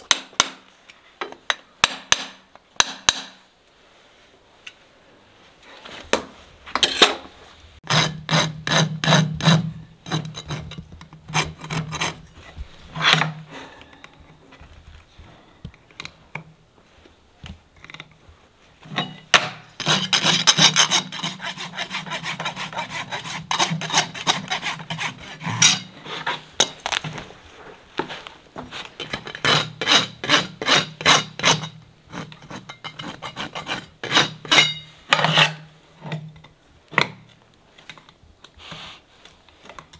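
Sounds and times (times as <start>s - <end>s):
rasp filing horse hoof: 7.8s - 12.3s, 18.9s - 26.8s, 28.9s - 35.7s.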